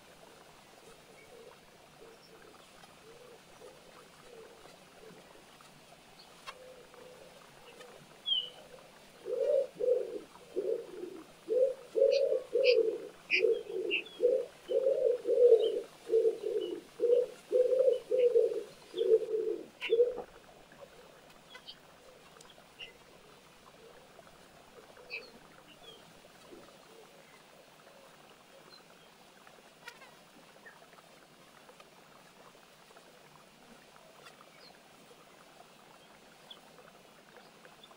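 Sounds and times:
small birds chirping: 7.6s - 8.7s, 9.3s - 20.2s
pigeon cooing: 9.2s - 20.4s.

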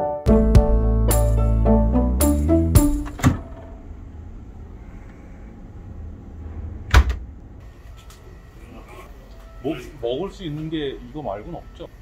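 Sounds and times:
low rumble: 3.4s - 7.6s.

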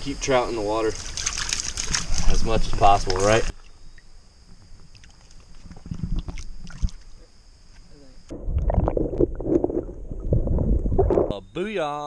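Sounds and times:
water splashing softly: 0.8s - 3.7s
muffled underwater churning: 0.8s - 7.6s, 8.2s - 11.6s.

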